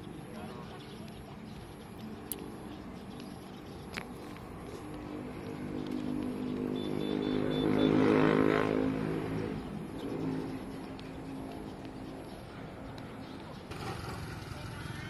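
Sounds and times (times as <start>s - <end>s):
motor vehicle driving past: 4.2s - 15.0s.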